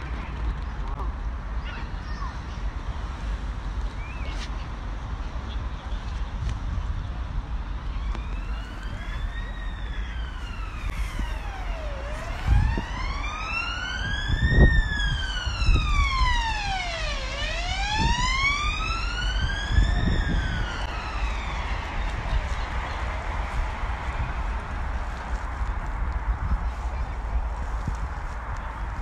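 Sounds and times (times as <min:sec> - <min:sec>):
siren wailing: 0:07.9 - 0:24.3.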